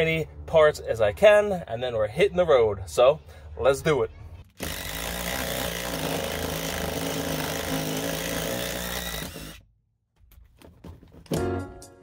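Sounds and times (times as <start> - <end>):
impact driver running: 4.5 - 9.6.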